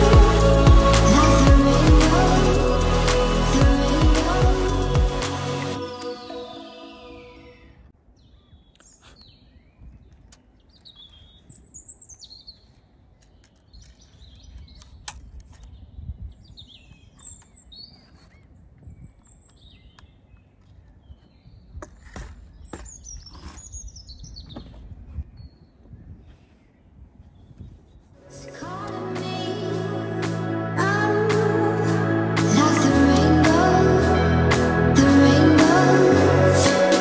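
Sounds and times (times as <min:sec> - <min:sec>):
small birds singing: 0:08.2 - 0:28.2
wind noise rumble: 0:14.6 - 0:16.9, 0:24.1 - 0:28.7.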